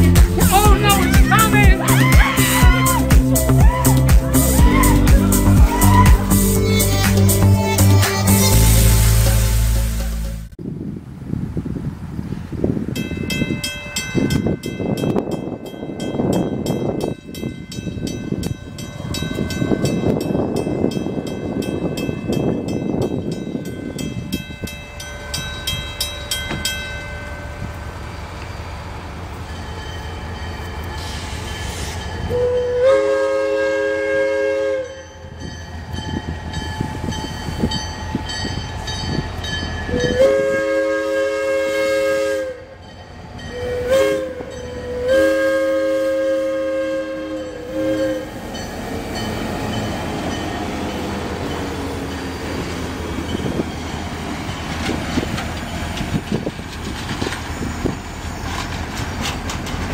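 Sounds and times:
locomotive air horn blasts: 7.6s - 9.5s, 31.8s - 35.0s, 39.9s - 42.8s, 43.5s - 48.6s
train wheels clicking over rail joints: 25.4s - 32.4s, 48.3s - 59.9s.

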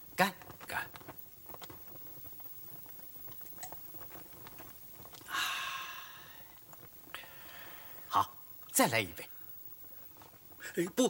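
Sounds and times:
small clicks and mouth sounds: 0.4s - 5.4s, 6.2s - 7.6s.

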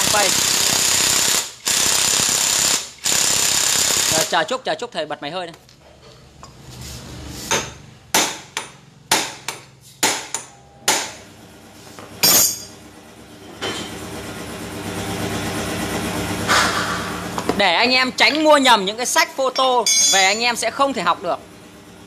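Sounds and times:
air compressor humming: 0.0s - 4.3s, 6.8s - 18.6s.

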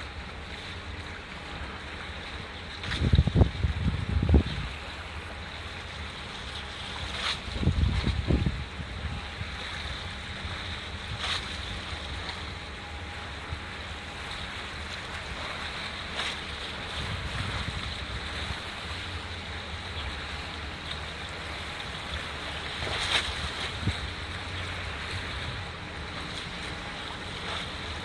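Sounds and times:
ship low rumble: 0.0s - 28.0s
water washing at breakwater: 0.0s - 28.0s
wind buffeting microphone: 2.8s - 5.4s, 7.4s - 13.8s, 14.4s - 21.4s, 22.2s - 28.0s.

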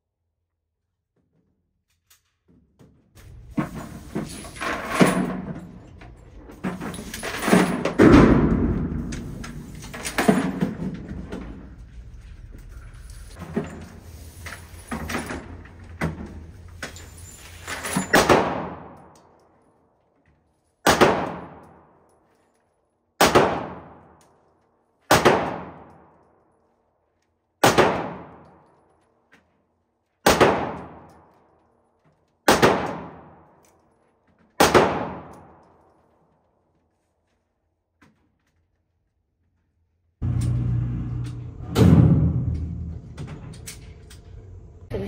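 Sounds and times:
handgun shots ringing indoors: 18.0s - 19.8s, 20.8s - 22.2s, 23.2s - 26.5s, 27.6s - 29.2s, 30.2s - 31.5s, 32.4s - 33.9s, 34.5s - 36.0s.

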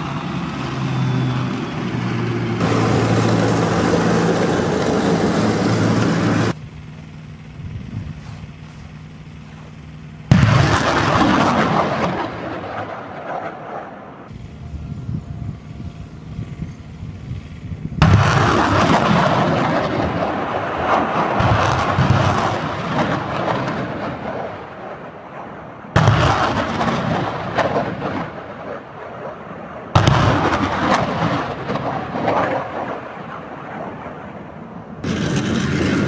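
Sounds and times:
low engine hum: 0.0s - 36.0s
rocket launch blast and roar: 10.3s - 14.4s, 17.4s - 36.0s.

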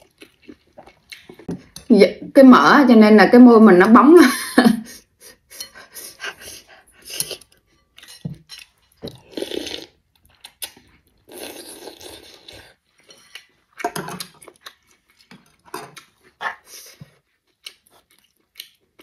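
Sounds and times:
slurping noodles: 9.2s - 10.0s, 11.2s - 12.8s.

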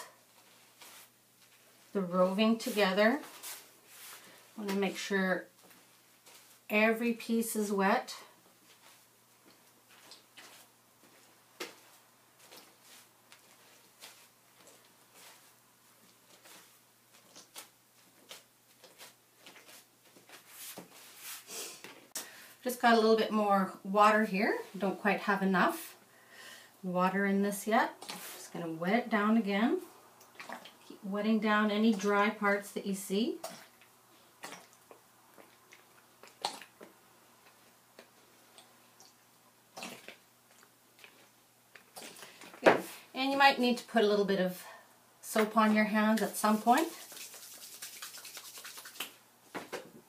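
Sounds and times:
hands patting wet wool: 0.3s - 5.0s, 8.6s - 21.5s, 45.3s - 49.8s
water dripping: 46.2s - 49.2s
squeeze bottle squirting water: 46.4s - 49.2s.

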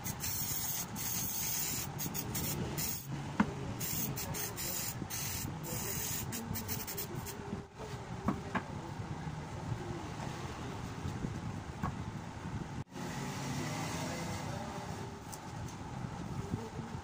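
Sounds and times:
low rumble background noise: 0.0s - 13.3s.

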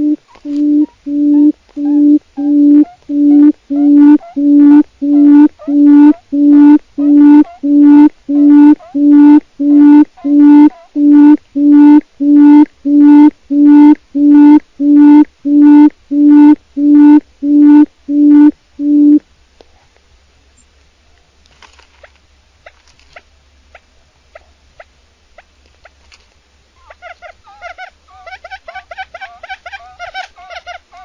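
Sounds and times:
quail hooting: 0.0s - 19.2s, 26.8s - 31.0s.

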